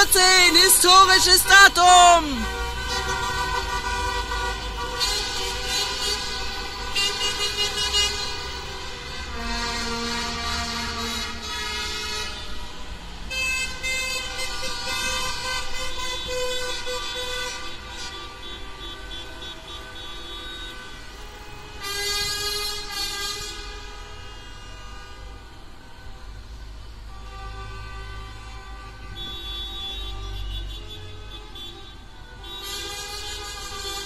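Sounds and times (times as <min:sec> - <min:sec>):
car horns honking: 0:00.0 - 0:12.7, 0:27.1 - 0:34.0
low traffic rumble: 0:00.0 - 0:34.0.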